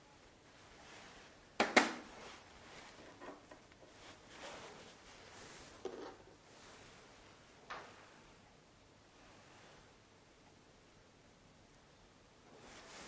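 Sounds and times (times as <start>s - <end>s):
handling and rustling: 2.0s - 8.0s, 12.5s - 13.0s.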